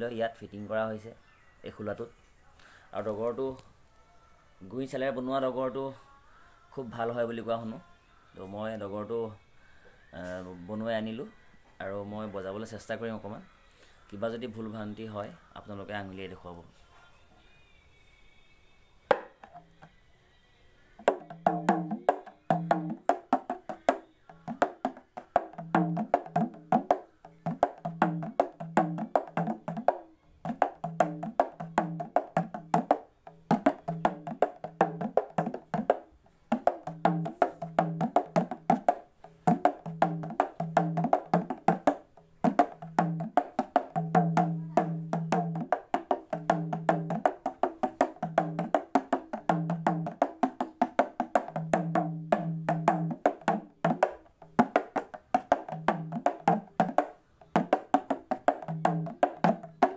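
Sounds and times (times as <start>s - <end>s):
single drum tap: 19.1s - 19.6s
hand drum played fast: 21.0s - 59.9s.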